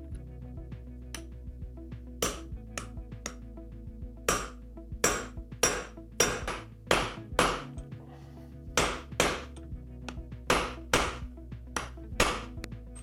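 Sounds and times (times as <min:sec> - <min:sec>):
hammer striking metal: 0:02.2 - 0:03.4, 0:04.3 - 0:07.9, 0:08.8 - 0:09.6, 0:10.5 - 0:11.2, 0:11.8 - 0:13.0.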